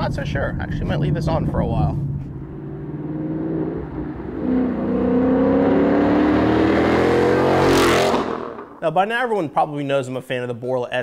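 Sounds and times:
car engine accelerating hard: 0.7 - 8.8
car passing close by: 2.3 - 8.8.

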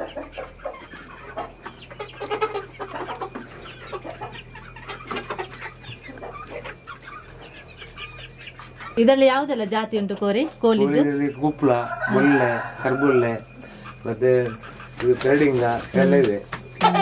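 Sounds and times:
chickens clucking: 0.0 - 17.0.

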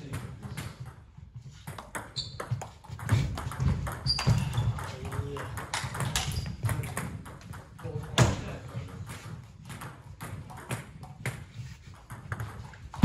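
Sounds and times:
ball bouncing on table: 0.0 - 13.0.

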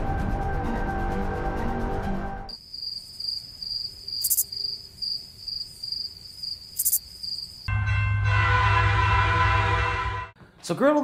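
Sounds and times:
crickets chirping: 2.5 - 7.7
train horn: 7.7 - 10.4.

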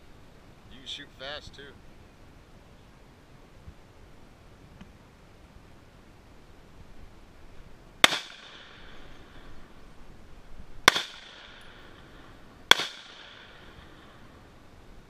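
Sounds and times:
rifle shots with echo: 8.0 - 9.5, 10.8 - 14.4.

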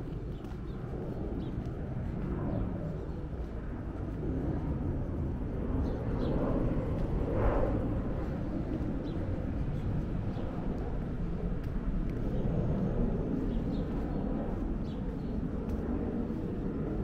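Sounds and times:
small birds chirping: 0.0 - 4.1, 8.2 - 17.0
distant traffic rumble: 0.0 - 17.0.

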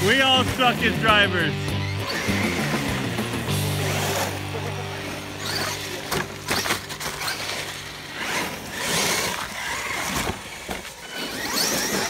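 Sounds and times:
rc truck motors whining: 0.0 - 12.0
tyres scrabbling on grit: 3.8 - 12.0
truck crashing and tumbling: 5.0 - 12.0.

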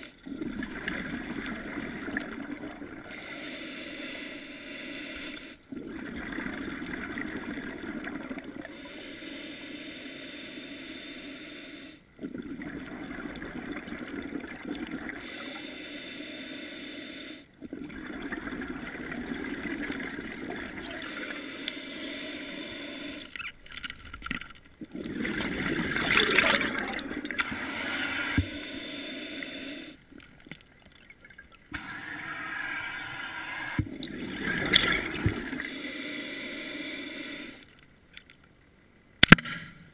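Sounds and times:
diver breathing underwater: 0.0 - 23.4, 24.9 - 30.1, 31.8 - 37.7
regulator air and bubbles: 0.0 - 37.8.

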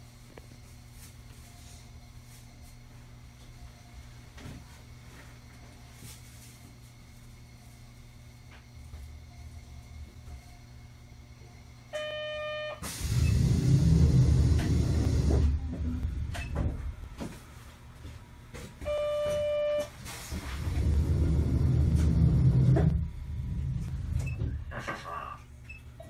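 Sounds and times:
streetcar interior hum: 0.0 - 25.7
tram rumbling: 12.8 - 17.2, 20.2 - 25.4.

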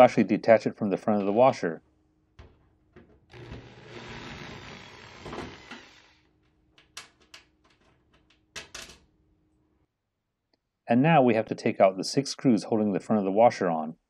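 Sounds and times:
cordless drill running: 3.3 - 6.3.

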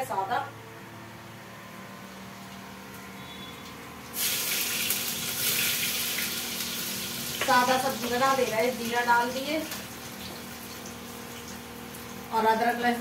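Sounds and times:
faint steady hum: 0.0 - 13.0
seeds sizzling in hot oil: 3.2 - 12.4.

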